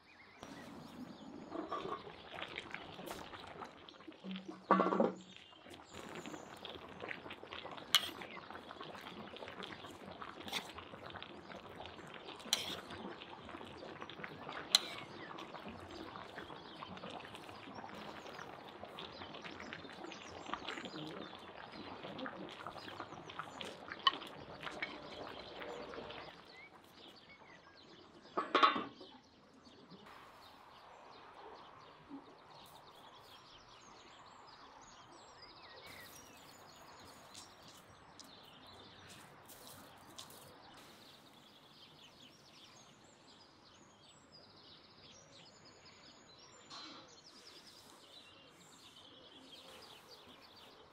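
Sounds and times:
outdoor ambience: 0.0s - 50.9s
pot simmering: 0.4s - 29.0s, 35.8s - 42.8s.

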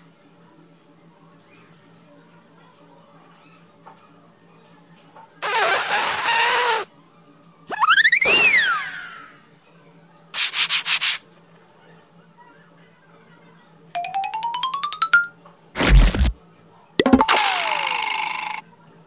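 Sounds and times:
cartoon whistle: 5.4s - 6.9s, 7.7s - 9.3s
cartoon rattling burst: 14.1s - 16.4s, 17.0s - 18.6s.

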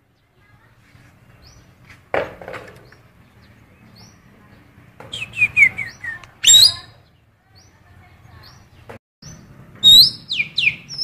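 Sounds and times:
songbird chirps and whistles: 5.0s - 7.8s, 8.4s - 11.0s
harsh rising bird call: 5.1s - 6.9s.

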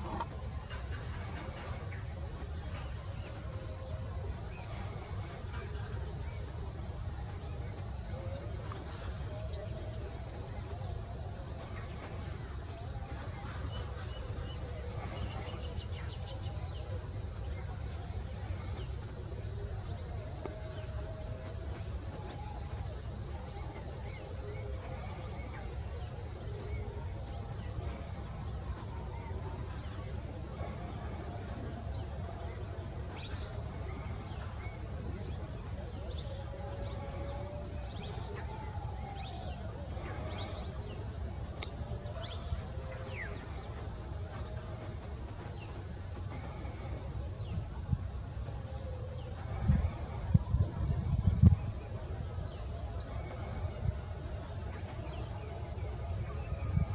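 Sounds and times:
constant low rumble: 0.0s - 56.9s
high-pitched hiss: 0.0s - 56.9s
low wavering bird calls: 0.0s - 56.9s.

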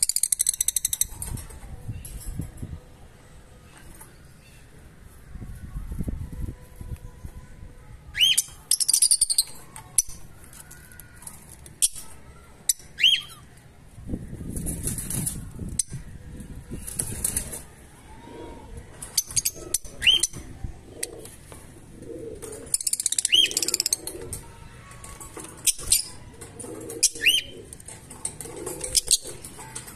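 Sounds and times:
soft bird chattering: 22.7s - 25.0s.

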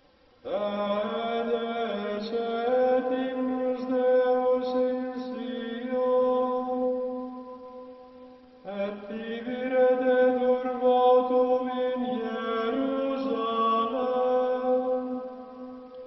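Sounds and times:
slow vocal chant: 0.1s - 16.0s.

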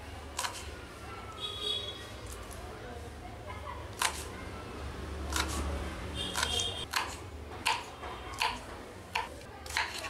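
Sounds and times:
knife chopping on wooden board: 6.3s - 10.0s.

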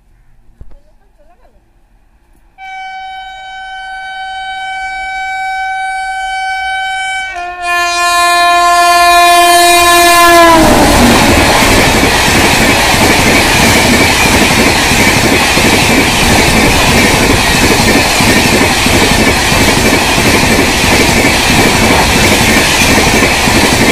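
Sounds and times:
train horn blast: 2.6s - 11.8s
train coaches rushing past: 8.7s - 23.9s.

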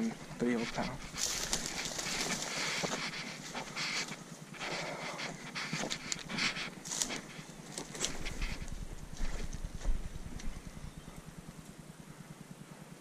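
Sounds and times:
footsteps through dry grass: 0.0s - 11.4s
person panting: 0.2s - 7.4s.

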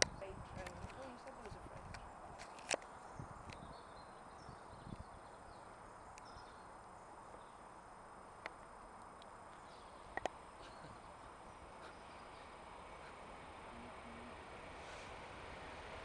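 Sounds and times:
faint bird chirps: 2.8s - 7.8s, 9.5s - 14.4s.

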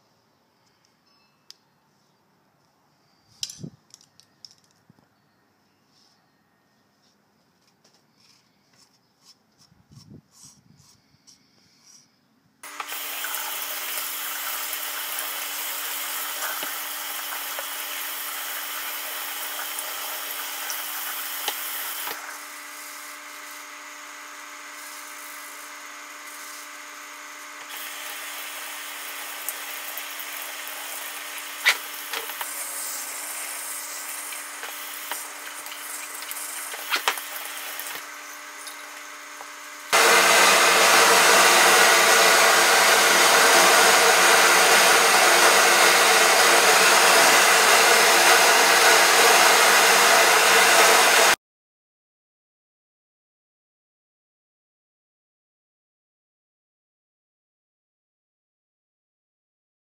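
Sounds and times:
hair dryer running: 12.6s - 51.4s.

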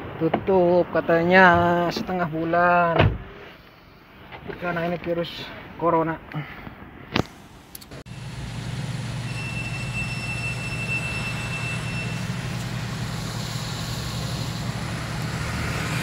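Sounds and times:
car engine and road noise: 0.0s - 16.0s
faint thin high tone: 9.2s - 12.3s.

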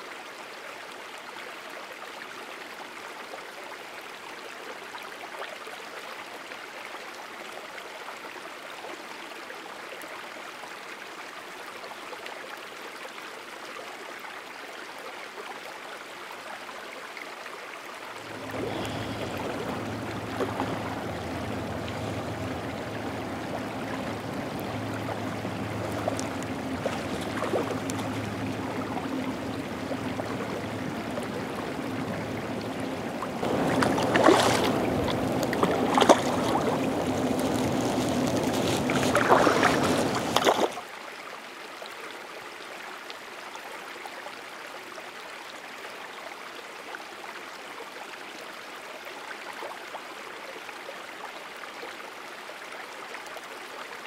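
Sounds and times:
creek water running: 0.0s - 54.0s
low hum: 18.2s - 40.5s
fish thrashing and splashing: 18.2s - 40.8s.

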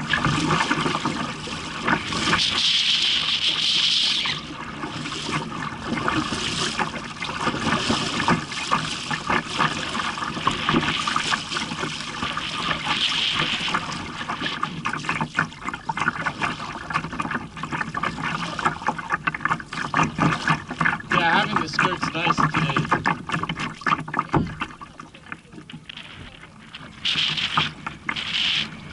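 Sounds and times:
water splashing against kayak: 0.0s - 28.9s.

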